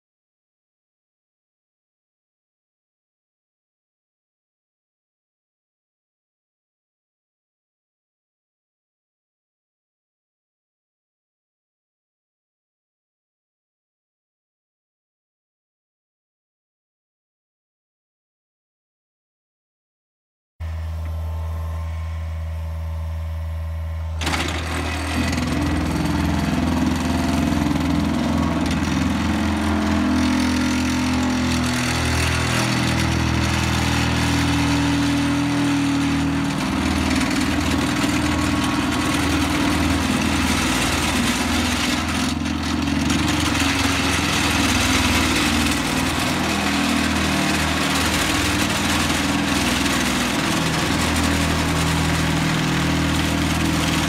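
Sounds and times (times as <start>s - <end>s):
excavator engine running: 20.6s - 54.0s
vibratory pile driver rattling: 24.1s - 54.0s.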